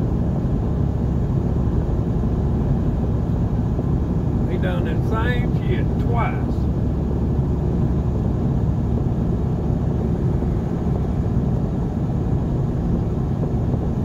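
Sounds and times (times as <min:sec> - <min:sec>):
road and engine rumble: 0:00.0 - 0:14.0.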